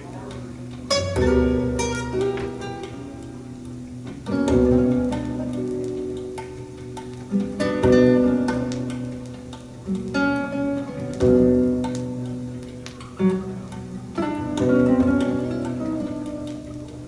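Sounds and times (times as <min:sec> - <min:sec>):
acoustic guitar music: 0:00.0 - 0:17.0.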